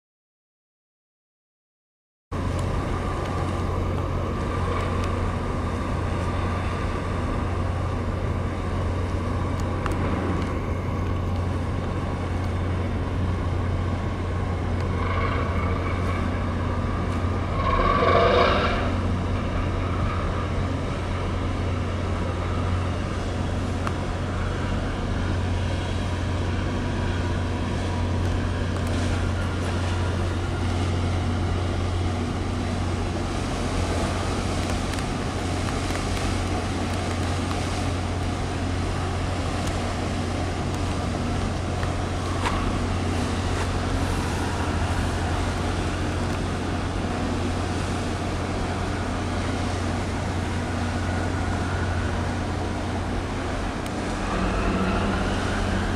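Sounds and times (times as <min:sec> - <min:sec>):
water and wind noise: 0:02.3 - 0:55.9
ship engine drone: 0:02.4 - 0:55.9.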